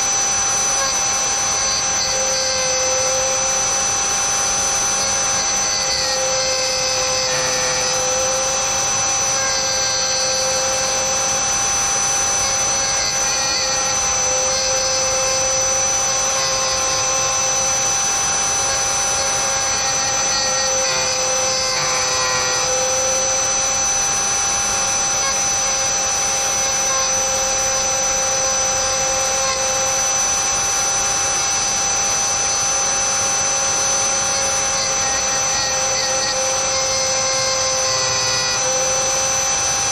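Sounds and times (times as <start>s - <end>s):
bit cutting plastic: 0.0s - 39.9s
rotary tool whining: 0.0s - 39.9s.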